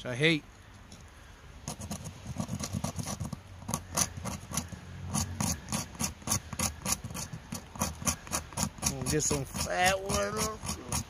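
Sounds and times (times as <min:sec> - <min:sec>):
serrated blade scraping wood: 0:01.6 - 0:11.0.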